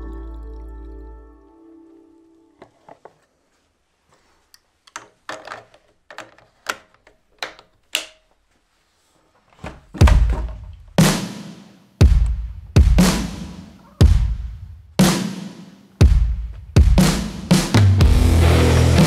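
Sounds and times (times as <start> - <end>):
booming drum beats: 10.0 - 11.4, 12.0 - 15.4, 16.0 - 19.0.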